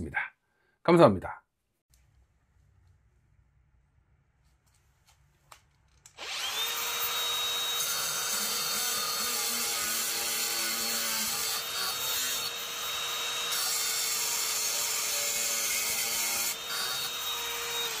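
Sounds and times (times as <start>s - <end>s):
angle grinder cutting steel: 6.2s - 18.0s.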